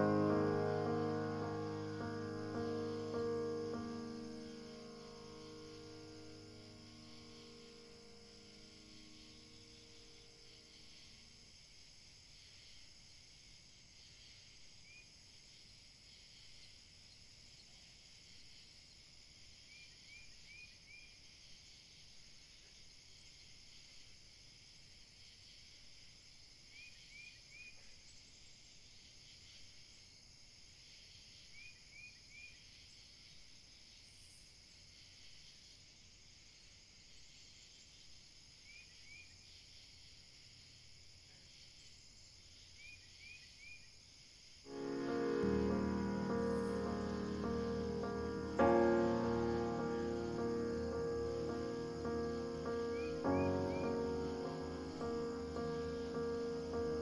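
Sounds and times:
high insect drone: 0.0 - 11.8, 44.5 - 57.0
insect chirps: 0.0 - 57.0.

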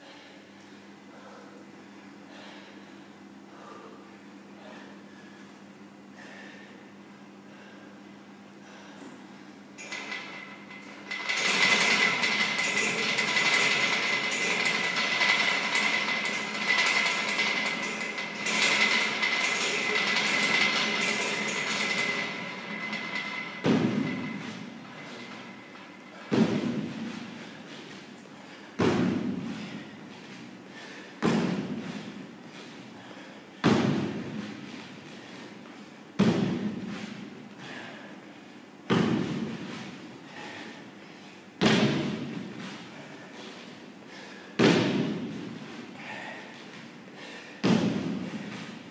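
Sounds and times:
metal rig rattling and creaking: 9.8 - 27.7
feet landing on wooden box: 23.6 - 24.6, 26.2 - 27.2, 31.2 - 32.1, 33.6 - 34.5, 44.6 - 45.5, 47.6 - 48.4.

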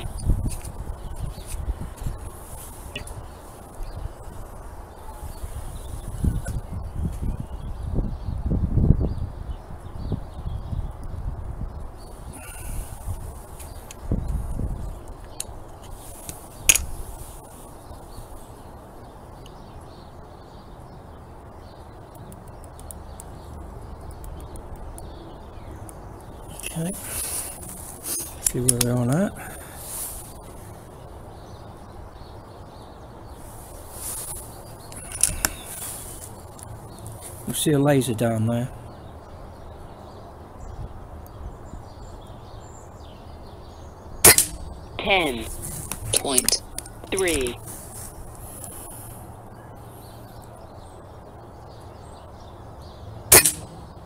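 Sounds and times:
faint bird chirps: 12.0 - 13.1, 34.2 - 36.1
air rifle firing: 44.3 - 44.6, 53.3 - 53.7.

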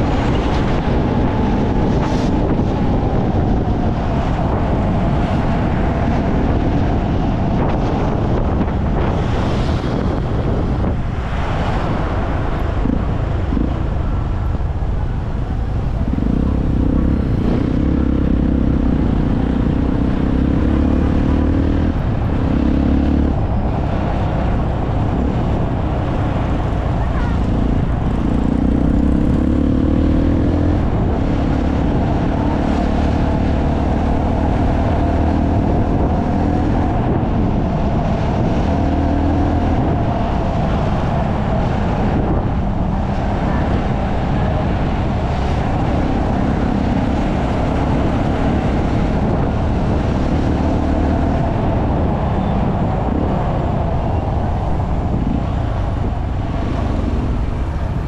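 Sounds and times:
road and wind noise: 0.0 - 58.0
vehicle engine revving: 15.5 - 58.0.

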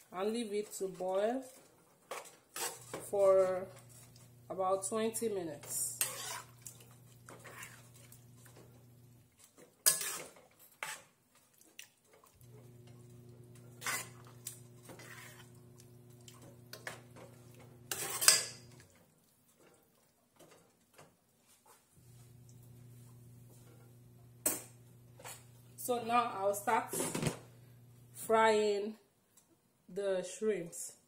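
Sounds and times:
utensil scraping a pan: 0.4 - 4.4, 5.5 - 8.7, 9.4 - 11.2, 13.5 - 18.9.

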